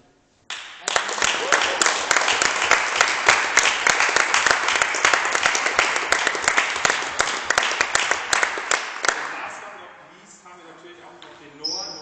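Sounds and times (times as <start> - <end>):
people applauding: 0.5 - 9.7.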